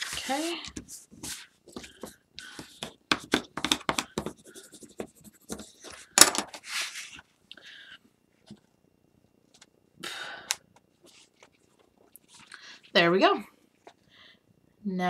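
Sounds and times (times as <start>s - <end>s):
paper rustling and scraping: 0.0s - 2.2s, 5.5s - 7.3s, 11.0s - 12.6s.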